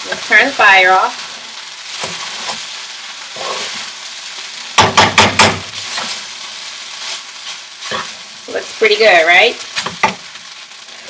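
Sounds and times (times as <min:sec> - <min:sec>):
rice sizzling in a skillet: 0:00.0 - 0:11.0
metal spatula knocking pan: 0:04.8 - 0:05.7.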